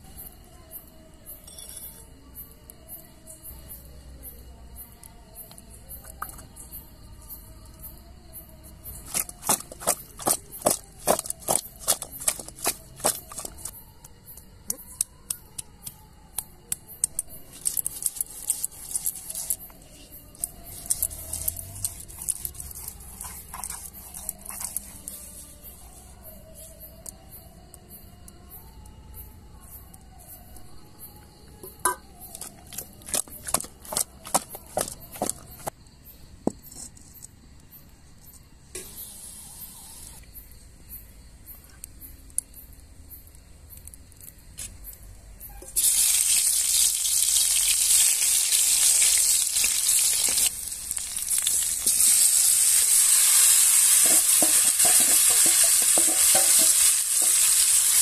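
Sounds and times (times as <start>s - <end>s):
kitchen utensils knocking: 54.0s - 57.4s.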